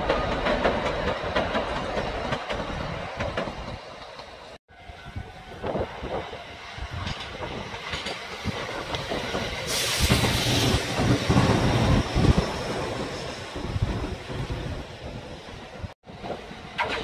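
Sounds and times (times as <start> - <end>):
electric train passing: 0.0 - 17.0.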